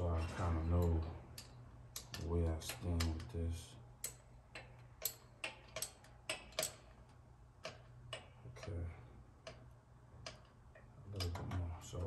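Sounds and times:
hand ratchet clicking: 4.0 - 8.8.

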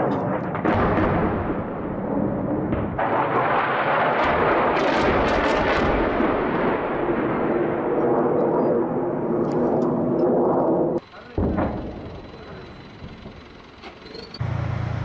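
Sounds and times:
sharp cracks of gunfire: 0.0 - 8.2
rumble of distant explosions: 0.0 - 13.7.

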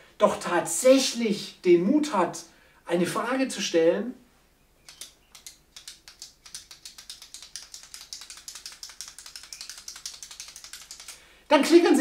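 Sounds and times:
ballpoint pen clicking: 4.8 - 11.2.

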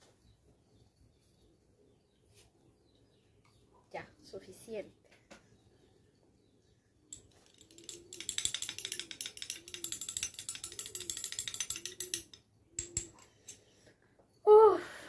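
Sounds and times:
metal spoon clinking in glass: 7.1 - 13.7
spoon tapping glass: 7.2 - 13.6.

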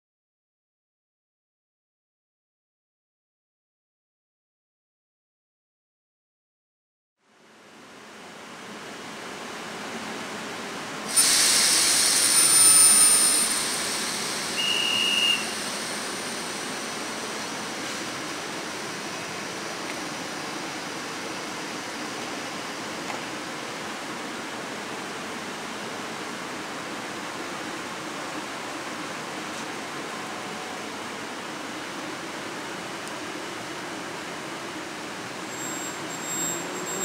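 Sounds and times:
compressed air hiss with whine: 11.0 - 22.1
standing train hissing: 11.0 - 23.0
shrill whistle blast: 11.7 - 13.8, 14.5 - 15.7.

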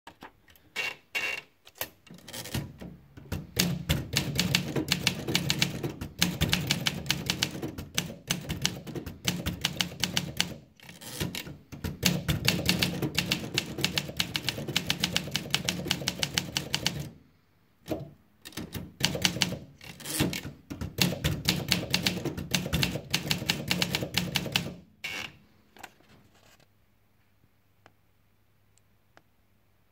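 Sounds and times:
fast typewriter typing: 3.3 - 17.2, 18.5 - 24.8
typewriter paper winding clicks: 18.5 - 20.6.

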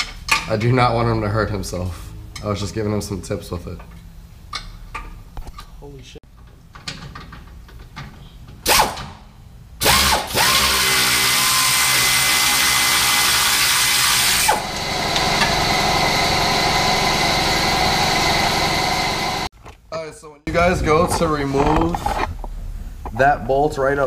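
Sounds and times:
pneumatic air ratchet: 8.6 - 9.1, 9.8 - 14.6.

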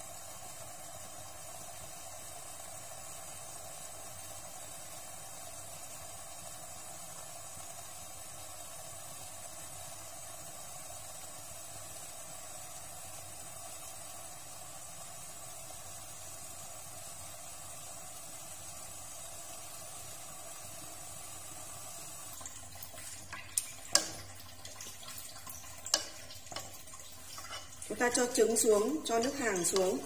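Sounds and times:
pot boiling with hiss: 0.0 - 30.0
pot clicks and knocks: 22.8 - 27.8, 29.4 - 30.0.

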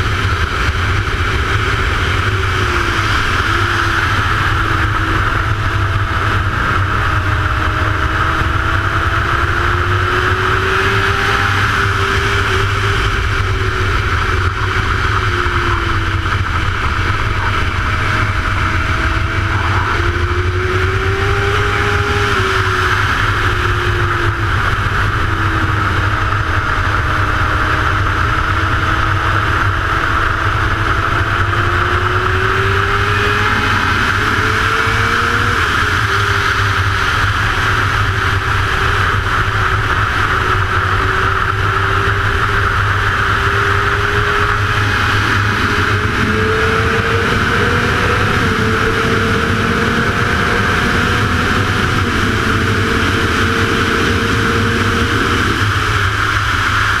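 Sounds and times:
motorcycle engine revving: 0.0 - 57.0
wind rushing: 1.8 - 26.1.

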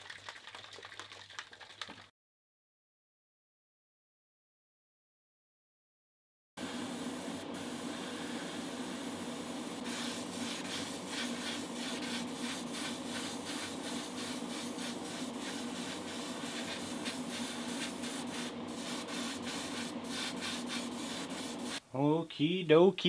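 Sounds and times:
airbrush spraying hiss: 6.6 - 21.8.

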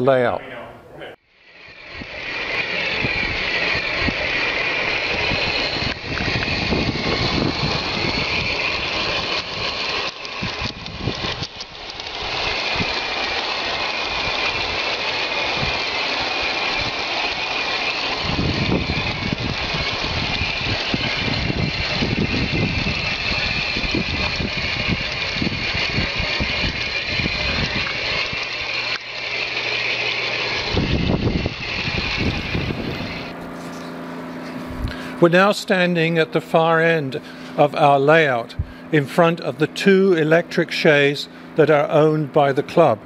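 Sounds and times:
low rumbling: 0.7 - 35.4
model locomotive motor whine: 1.2 - 43.0
wheels rolling on rails: 1.4 - 35.7.

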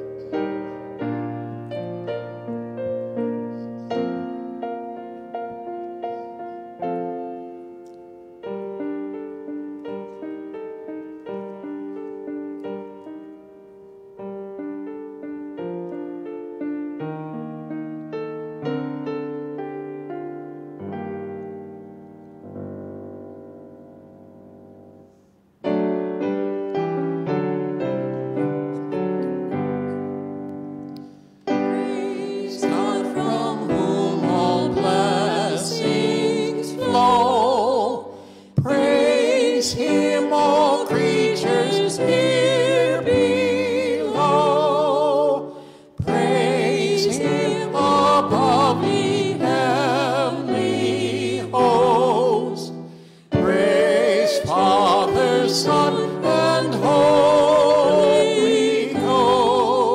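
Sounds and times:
keyboard playing hymn chords: 25.7 - 59.9
voices singing a hymn: 31.0 - 59.9.

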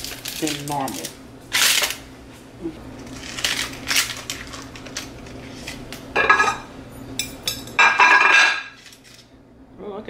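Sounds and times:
utensil clattering: 6.2 - 9.1.

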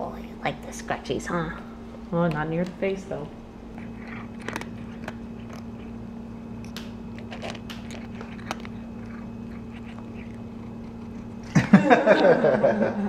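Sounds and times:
low hum: 0.0 - 13.0
cat crunching dry kibble: 3.7 - 12.2.

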